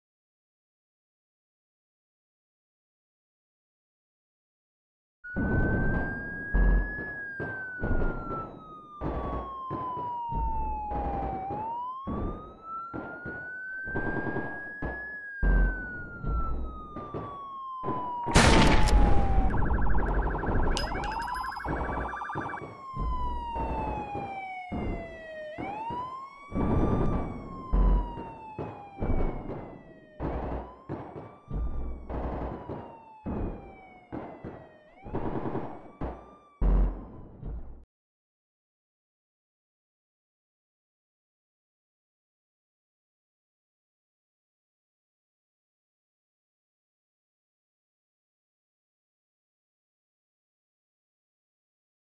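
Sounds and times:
police siren wailing: 5.3 - 37.4
rapid beeping: 19.5 - 22.7.

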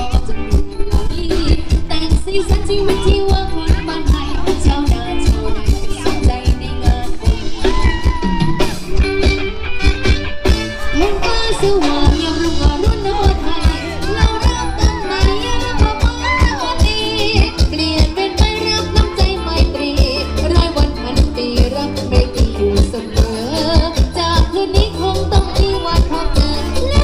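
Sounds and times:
person singing: 0.0 - 8.8, 10.8 - 27.0
amplified dance band music: 0.0 - 27.0
fast steady drum beat: 0.0 - 27.0.

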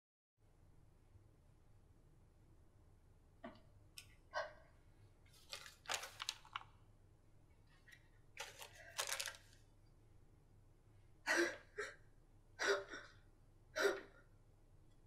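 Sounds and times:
paper rustling: 5.3 - 6.7, 7.8 - 9.7.

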